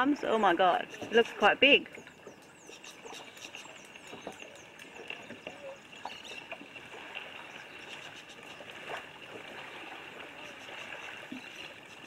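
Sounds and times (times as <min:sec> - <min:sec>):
bird chirping: 0:00.8 - 0:06.6.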